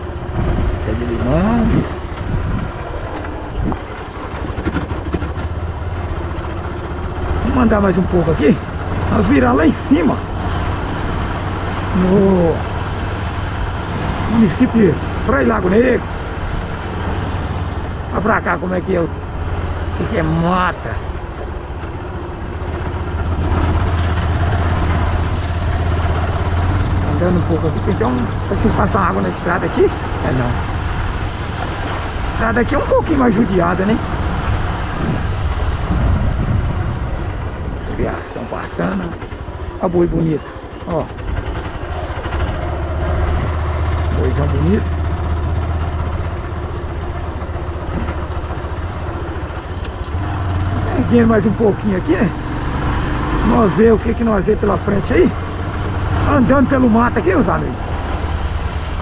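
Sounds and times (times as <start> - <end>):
wind rushing: 0.0 - 9.2, 30.0 - 39.8
motorcycle engine running: 0.0 - 59.0
tyre noise on dirt road: 0.0 - 59.0.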